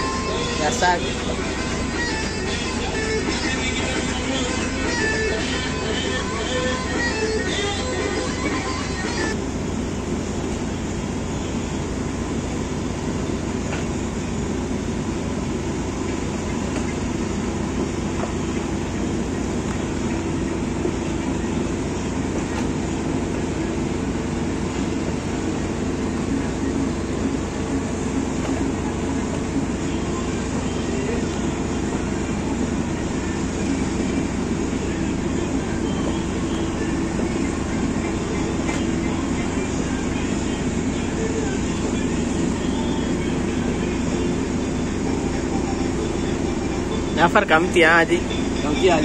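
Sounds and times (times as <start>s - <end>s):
boat engine droning: 0.0s - 49.0s.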